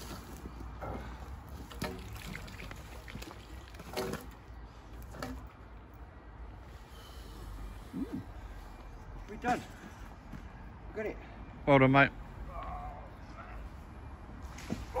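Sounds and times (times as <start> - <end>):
water splashing and trickling: 0.0 - 5.8.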